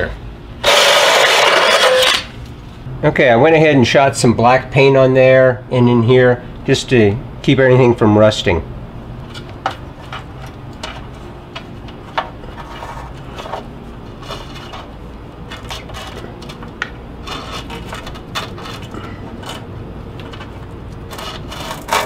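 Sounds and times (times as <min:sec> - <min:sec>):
steady low hum: 0:00.0 - 0:22.0
hands working car wiring: 0:09.2 - 0:22.0.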